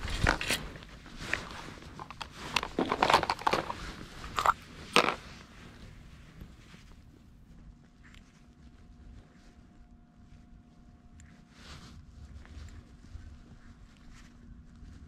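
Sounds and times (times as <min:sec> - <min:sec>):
fishing tackle crinkling and clicking: 0:00.0 - 0:05.2.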